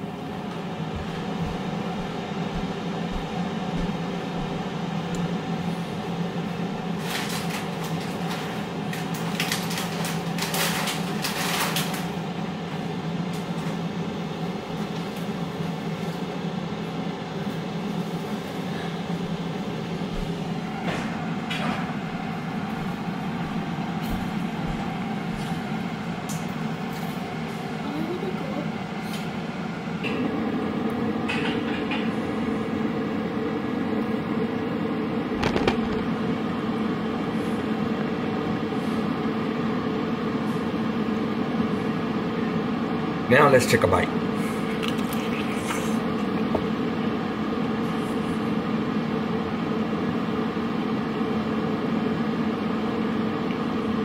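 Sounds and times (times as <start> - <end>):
air fryer fan humming: 0.0 - 54.0
sharp clicks and knocks: 35.4 - 36.0.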